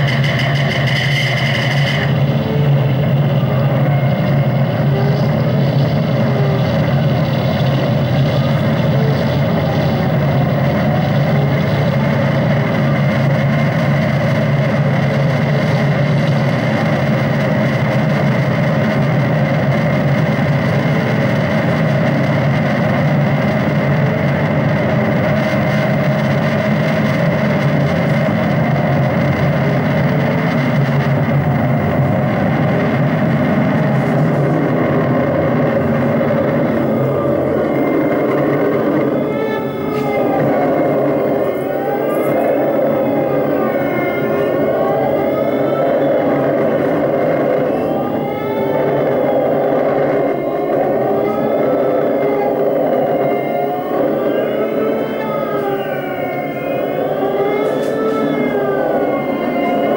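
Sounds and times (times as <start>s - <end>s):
engine-like electronic drone: 0.0s - 59.9s
swooping electronic tones: 17.1s - 59.9s.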